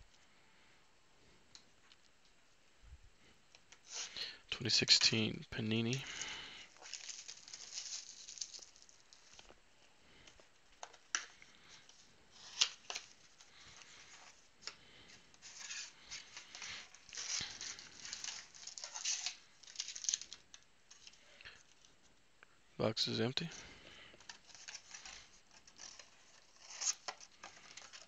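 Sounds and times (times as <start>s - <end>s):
foil packs crinkling: 5.9s - 21.8s, 23.9s - 28.0s.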